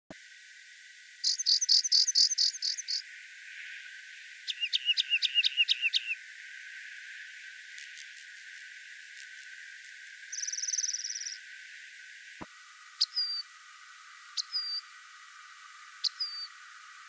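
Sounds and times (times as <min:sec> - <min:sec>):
wren singing: 0:01.2 - 0:11.7, 0:13.0 - 0:13.5, 0:14.3 - 0:15.0, 0:15.9 - 0:16.7.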